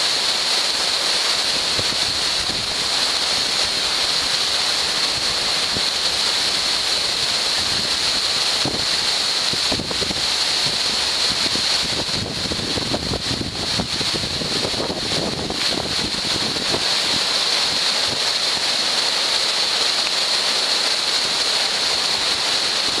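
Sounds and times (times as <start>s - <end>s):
river rushing: 0.0s - 23.0s
wind buffeting microphone: 8.6s - 18.3s.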